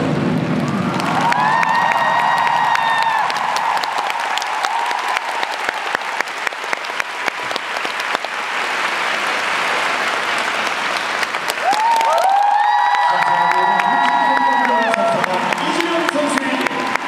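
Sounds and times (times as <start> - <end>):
audience applauding: 0.4 - 17.0
crowd cheering and screaming: 0.4 - 17.0.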